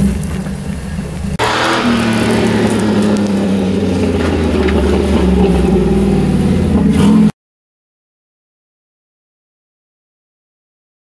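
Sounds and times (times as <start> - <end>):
engine running hard under throttle: 1.4 - 7.3.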